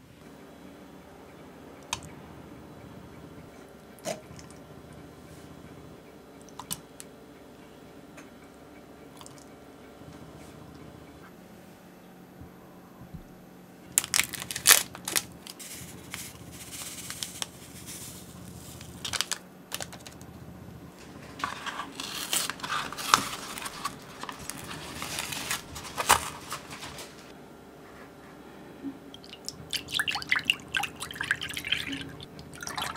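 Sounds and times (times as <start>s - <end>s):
paperboard crinkling and crackling: 13.9s - 20.3s, 21.0s - 27.3s
paper packaging tearing: 14.0s - 20.2s, 21.2s - 27.3s.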